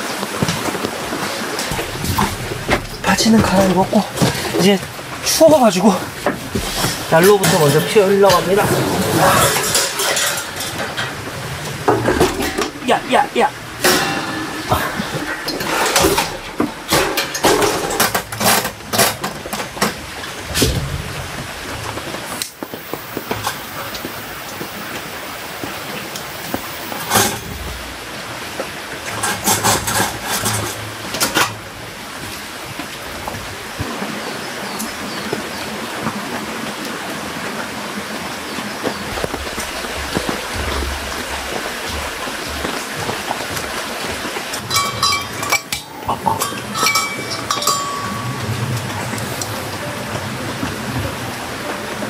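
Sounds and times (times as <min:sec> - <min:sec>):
rain falling on tent: 0:00.0 - 0:52.0
metallic clinks of camping gear: 0:44.6 - 0:48.5.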